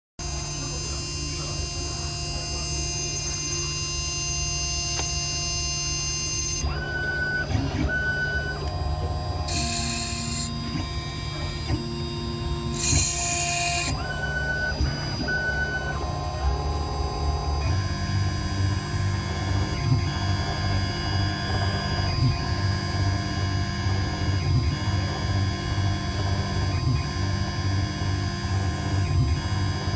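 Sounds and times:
grinding machine motor whining: 0:00.2 - 0:29.9
short electronic tones: 0:00.3 - 0:22.7.

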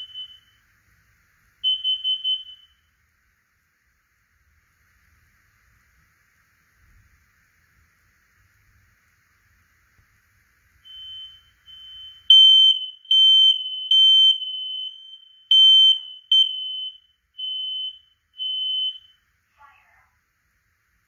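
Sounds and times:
smoke alarm beeping: 0:00.0 - 0:00.6, 0:01.6 - 0:03.0, 0:10.8 - 0:19.4.

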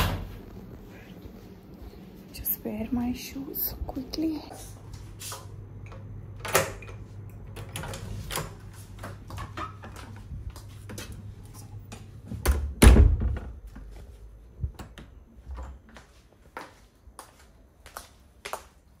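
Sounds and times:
steady low hum: 0:00.0 - 0:18.4.

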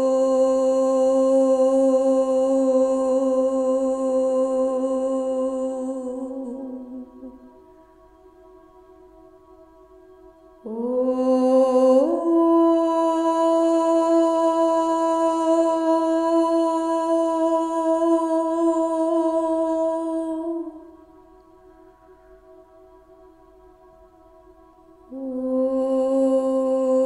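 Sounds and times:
woman singing a long note: 0:00.0 - 0:07.6, 0:10.6 - 0:21.2, 0:25.1 - 0:27.0.

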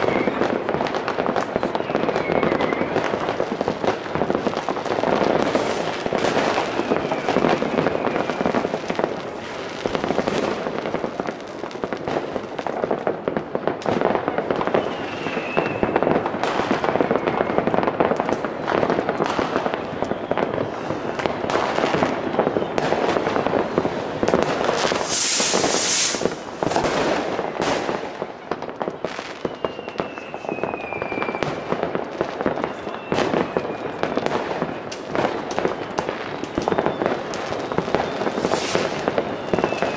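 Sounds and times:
firework whistles falling in pitch: 0:00.0 - 0:03.4, 0:05.3 - 0:09.0, 0:14.2 - 0:18.2, 0:19.2 - 0:23.5, 0:24.4 - 0:27.6, 0:28.2 - 0:39.9
fireworks banging and crackling: 0:00.0 - 0:39.9
loud hiss: 0:24.9 - 0:26.5.

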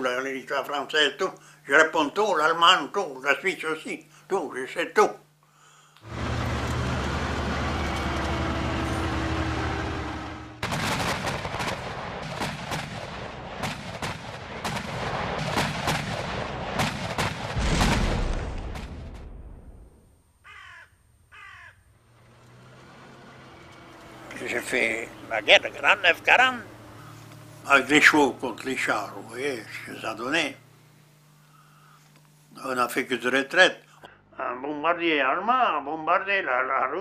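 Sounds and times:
tank engines rumbling: 0:06.0 - 0:16.7, 0:21.7 - 0:31.5
rapid gunfire: 0:10.6 - 0:19.3
heavy low boom: 0:17.4 - 0:20.0
crow cawing: 0:20.4 - 0:21.8.

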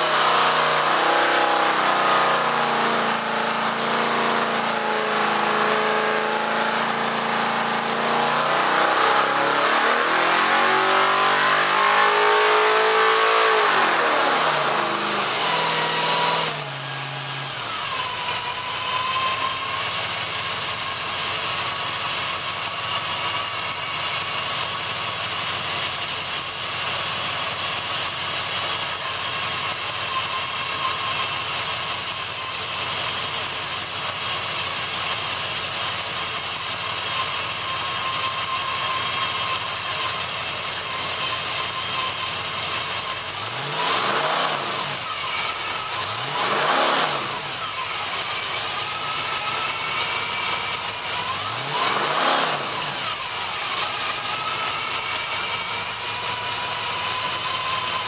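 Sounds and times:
race engine revving: 0:00.0 - 0:20.0, 0:37.2 - 0:58.0.

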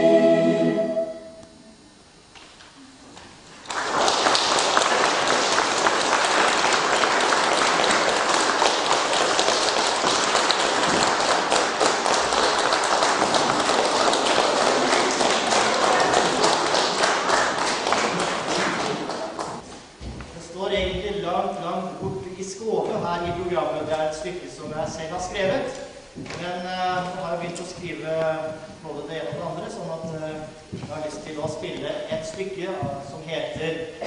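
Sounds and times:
audience applauding: 0:03.5 - 0:19.6.

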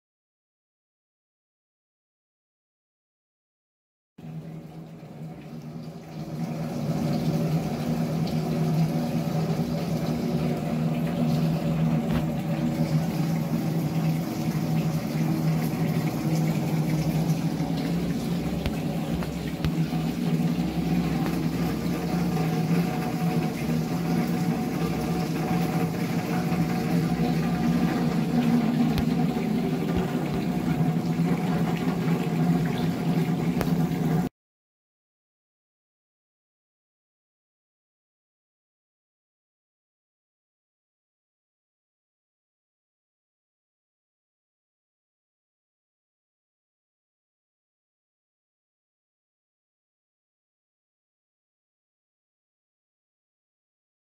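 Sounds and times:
steady low hum: 0:04.2 - 0:34.3
water splashing on drums and cymbal: 0:04.2 - 0:34.3.

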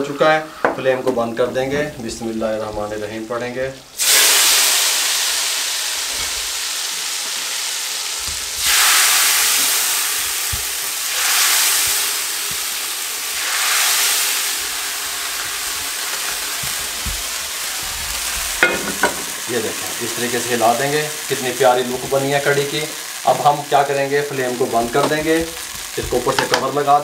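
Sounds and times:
hot oil sizzling: 0:00.0 - 0:27.0
ladle knocking: 0:18.6 - 0:19.5.

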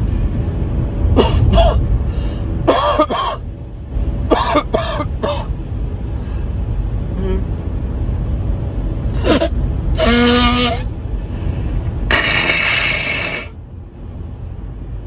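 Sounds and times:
low rumble: 0:00.0 - 0:15.0
man coughing: 0:01.1 - 0:01.9, 0:02.6 - 0:03.4.

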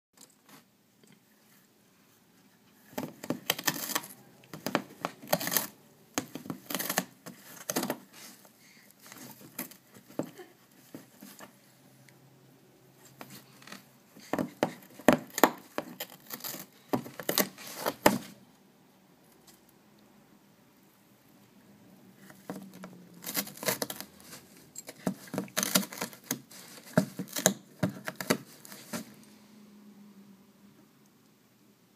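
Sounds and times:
cat tearing cardboard: 0:02.9 - 0:08.4, 0:13.0 - 0:18.4, 0:22.2 - 0:29.2.

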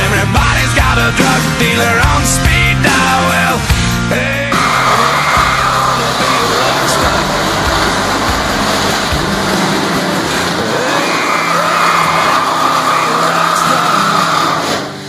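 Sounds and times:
small motor machine whining: 0:04.5 - 0:15.0.

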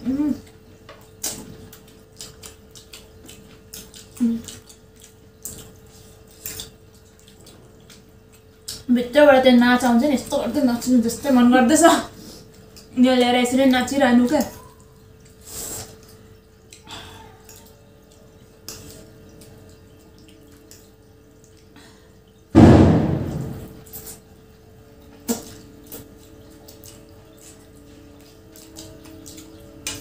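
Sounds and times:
eating noodles: 0:00.0 - 0:08.9, 0:12.0 - 0:22.4, 0:25.0 - 0:30.0
firecracker bang: 0:22.6 - 0:23.8.

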